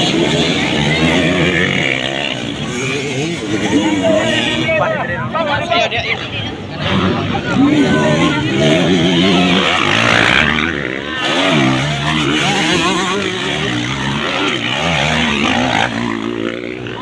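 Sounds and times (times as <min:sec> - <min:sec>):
dirt bike engines revving: 0:00.0 - 0:17.0.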